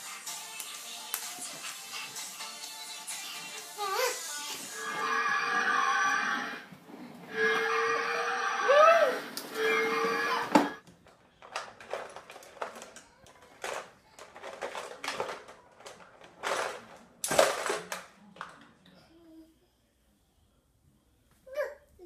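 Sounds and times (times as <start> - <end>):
plastic toy car clacks: 10.8 - 18.7.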